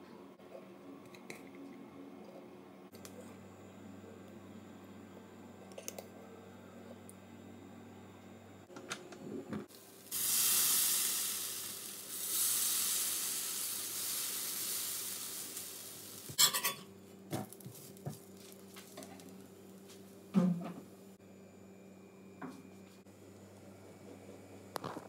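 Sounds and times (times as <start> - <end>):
batter sizzling on hot iron: 9.7 - 16.8, 17.4 - 20.0
steel utensils clinking: 16.4 - 16.9.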